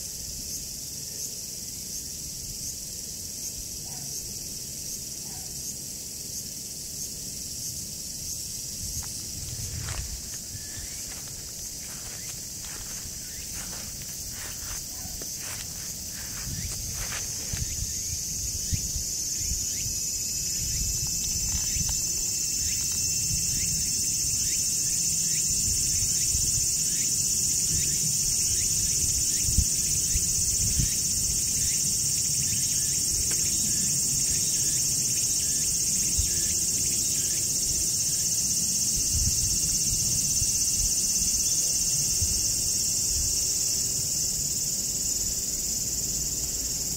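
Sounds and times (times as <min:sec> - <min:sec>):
high-pitched insect chorus: 0:00.0 - 0:46.9
thin steady insect tone: 0:00.0 - 0:46.9
soft rustles: 0:09.0 - 0:17.9.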